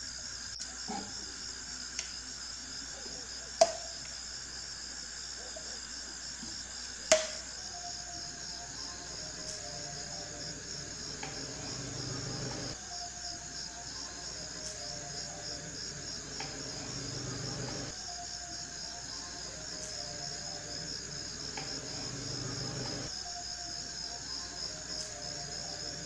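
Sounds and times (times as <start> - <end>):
cricket trilling: 0.0 - 26.0
background music: 7.1 - 26.0.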